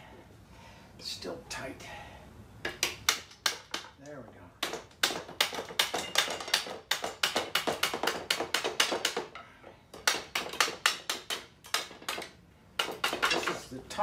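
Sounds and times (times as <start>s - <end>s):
mallet tapping on wood: 2.6s - 3.9s, 4.6s - 9.4s, 10.0s - 13.6s.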